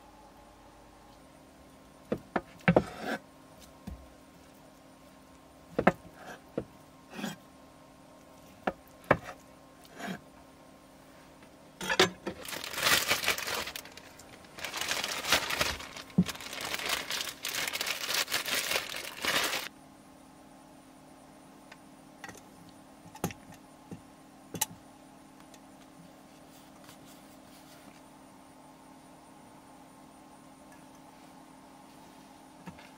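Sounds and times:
plastic packaging crinkling: 12.3s - 19.7s.

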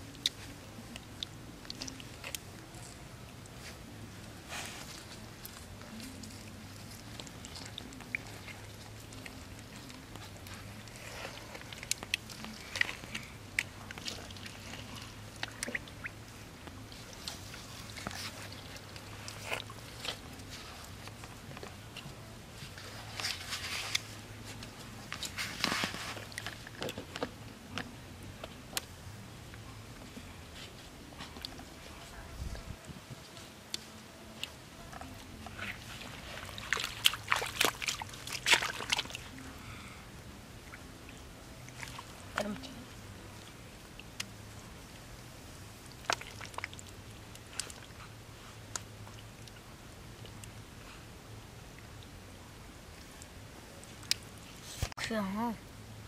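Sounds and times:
steady low hum: 0.0s - 56.0s
hands squelching in wet mud: 33.7s - 39.8s, 40.5s - 44.4s, 45.8s - 50.5s.

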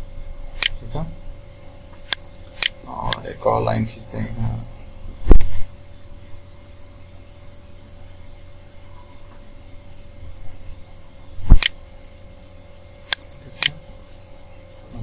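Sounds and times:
low electrical hum: 0.0s - 15.0s
computer mouse click: 11.5s - 12.2s, 13.1s - 13.8s.

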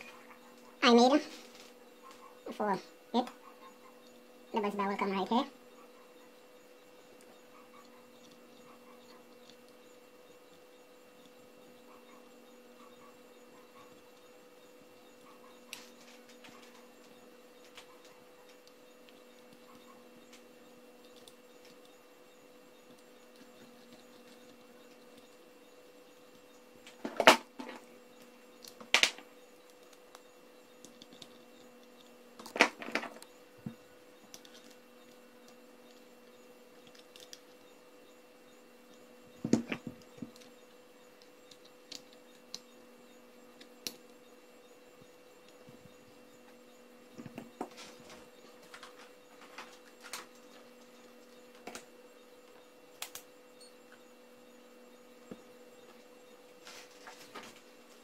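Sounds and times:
faint electrical hum: 0.0s - 58.0s.

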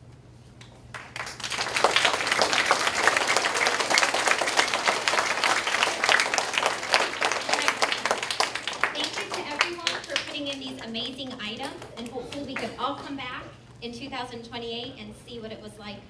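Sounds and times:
audience applauding: 0.8s - 12.8s.

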